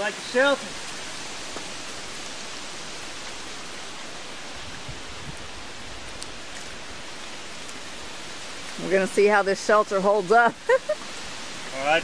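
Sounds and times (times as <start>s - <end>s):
wind rustling leaves: 0.0s - 12.0s.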